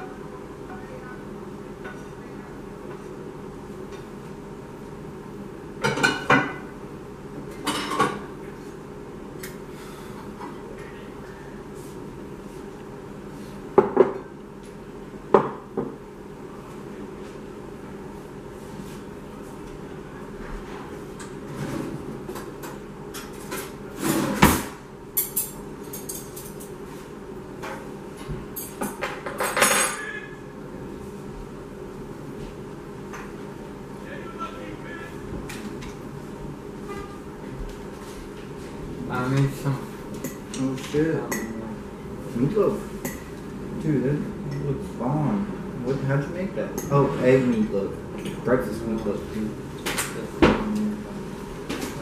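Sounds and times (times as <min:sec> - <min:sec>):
steady low hum: 0:00.0 - 0:52.0
dishes and pans clattering: 0:05.8 - 0:06.7, 0:07.5 - 0:08.3, 0:28.6 - 0:30.2.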